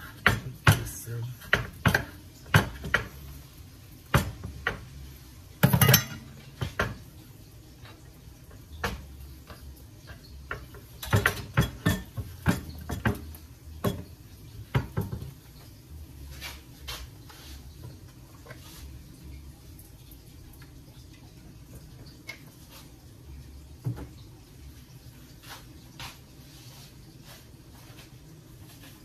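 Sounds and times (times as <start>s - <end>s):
spoon clinking on ceramic bowl: 5.6s - 6.3s.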